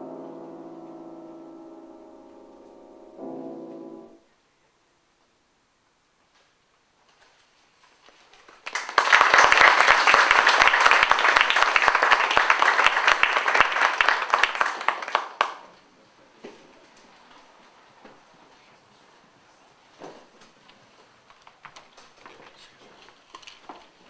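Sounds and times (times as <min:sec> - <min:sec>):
audience applauding: 0:08.3 - 0:15.8.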